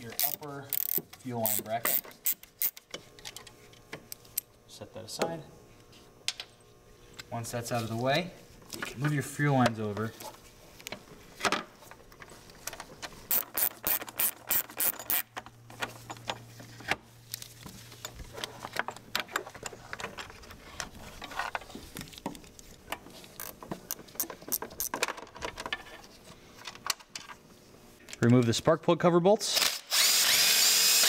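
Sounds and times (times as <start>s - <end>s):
ratchet wrench clicking: 0.1s - 2.8s, 13.3s - 15.3s.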